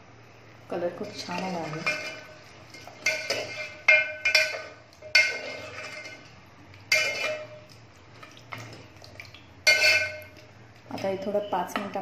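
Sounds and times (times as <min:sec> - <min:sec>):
metal ladle clinking on pot: 0:01.2 - 0:07.8, 0:09.6 - 0:12.0.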